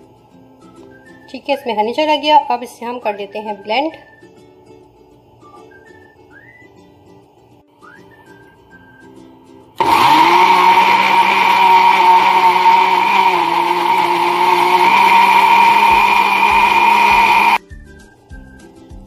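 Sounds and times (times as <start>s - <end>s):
blender motor running: 9.8s - 17.6s.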